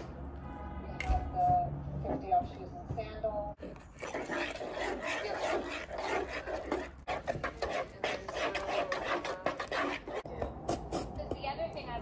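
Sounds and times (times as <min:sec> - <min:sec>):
whisk beating batter in bowl: 0:03.8 - 0:10.3.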